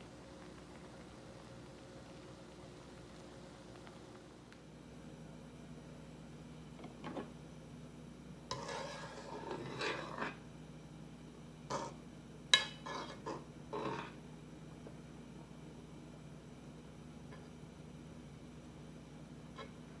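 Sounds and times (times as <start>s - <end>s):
faint steady hum: 0.0s - 20.0s
utensil scraping and tapping a pot: 8.5s - 10.4s, 12.6s - 14.2s.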